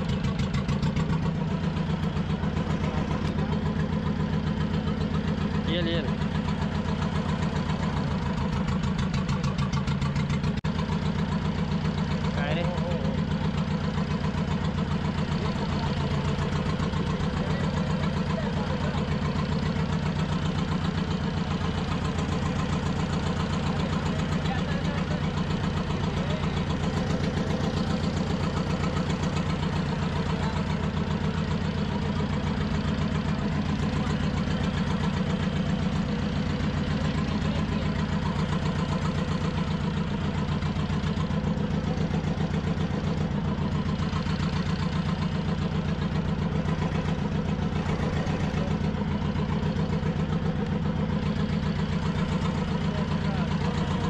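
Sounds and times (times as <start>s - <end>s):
boat engine idling: 0.0s - 54.0s.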